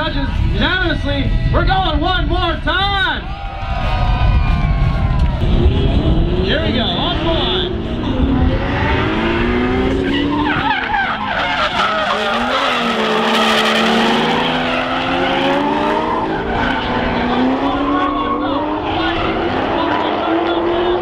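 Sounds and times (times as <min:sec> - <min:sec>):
car engines revving: 0:04.6 - 0:21.0
tyres skidding and squealing: 0:04.6 - 0:21.0.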